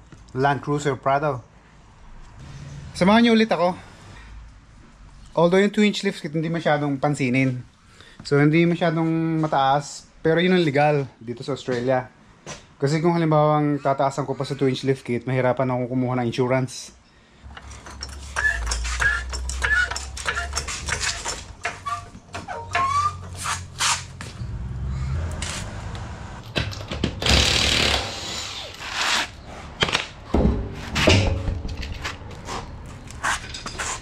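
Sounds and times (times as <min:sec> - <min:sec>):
floor jack clicks and squeaks: 0:17.5 - 0:24.4.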